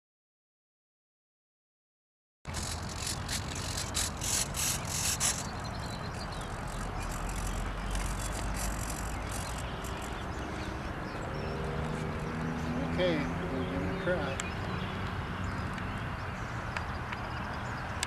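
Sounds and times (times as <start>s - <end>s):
microphone handling rustling: 2.5s - 10.6s.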